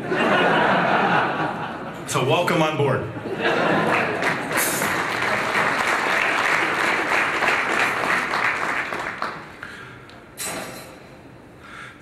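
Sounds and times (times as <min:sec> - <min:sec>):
audience applauding: 0:03.7 - 0:09.7.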